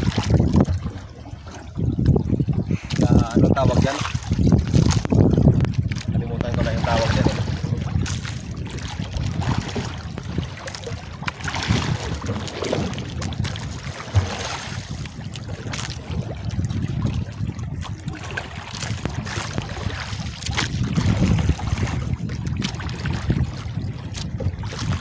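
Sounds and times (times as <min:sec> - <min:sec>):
water lapping against boat hull: 0:00.0 - 0:25.0
wind buffeting microphone: 0:00.0 - 0:25.0
sharp water slaps: 0:03.8 - 0:16.0, 0:17.8 - 0:23.4.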